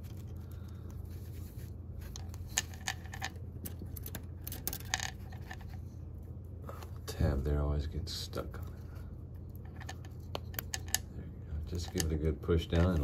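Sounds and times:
metal nut clicking and scraping: 2.0s - 5.9s, 9.5s - 11.1s, 11.7s - 13.0s.

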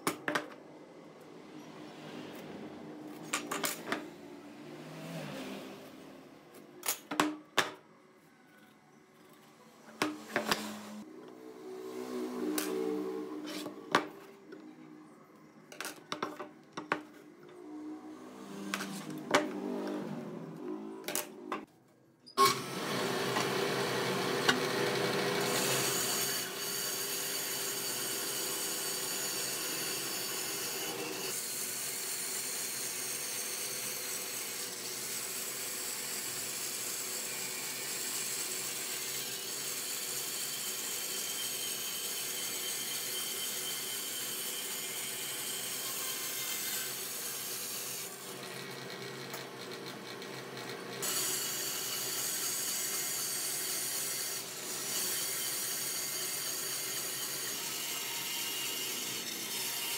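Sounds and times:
bandsaw cutting wood: 9.9s - 14.1s, 17.6s - 21.6s, 22.4s - 59.9s.

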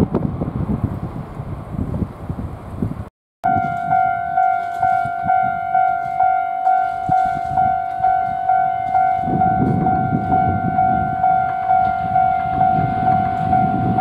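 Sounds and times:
low train rumble: 0.0s - 14.0s
level crossing warning bell: 3.4s - 14.0s.

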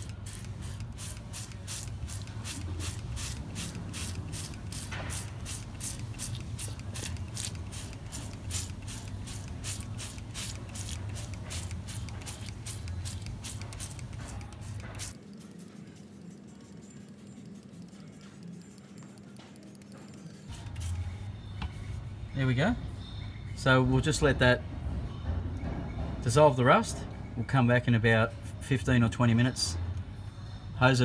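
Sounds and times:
trigger sprayer spraying: 0.0s - 21.1s.

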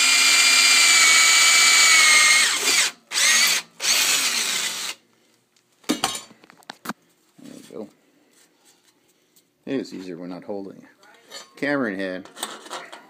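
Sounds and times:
drill motor whining: 0.0s - 5.0s.

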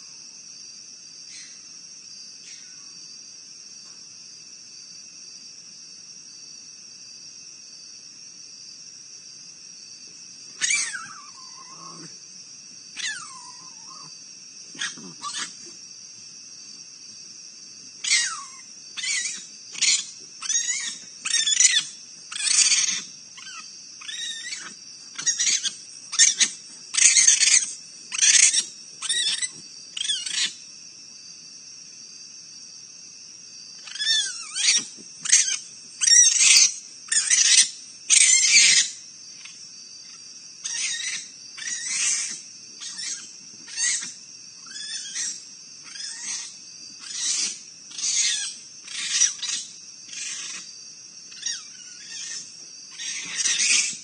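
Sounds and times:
raccoons screeching: 10.5s - 12.1s, 13.0s - 14.1s, 14.7s - 15.8s, 18.0s - 30.6s, 33.8s - 50.7s, 51.3s - 54.0s.

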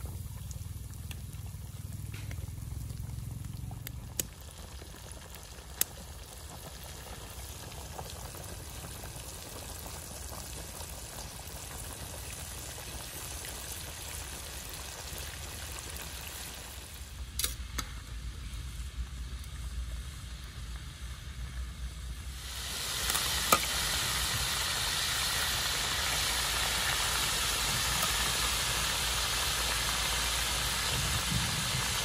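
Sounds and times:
oil sizzling in a wok: 0.0s - 32.0s
metal tongs clicking on pan: 17.4s - 17.9s.

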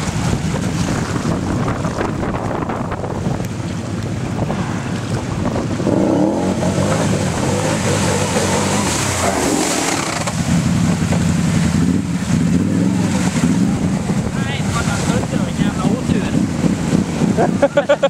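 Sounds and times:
water splashing off wheels: 0.0s - 18.0s
wind on microphone: 0.0s - 18.0s
quad engines revving: 5.7s - 16.4s.

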